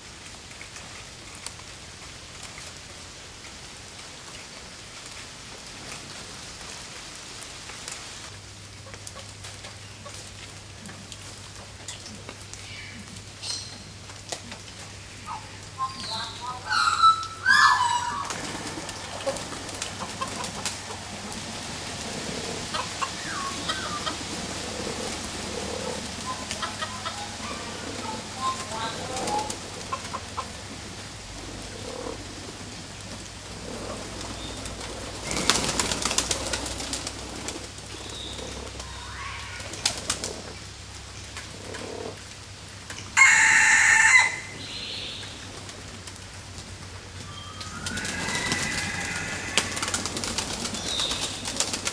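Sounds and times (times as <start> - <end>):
doves cooing: 8.7 - 51.9
wings flapping: 14.0 - 40.7, 45.4 - 51.9
harsh bird call: 15.2 - 21.0, 38.2 - 39.8, 47.3 - 51.4
hens clucking: 15.2 - 40.6, 47.6 - 51.9.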